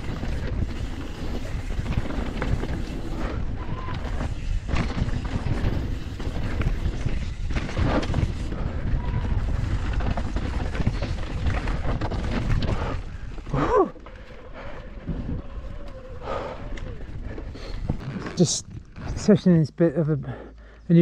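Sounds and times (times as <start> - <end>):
tyres rumbling on dirt: 0.0 - 15.6
wind buffeting microphone: 0.0 - 19.0
bike rattling: 0.0 - 19.5.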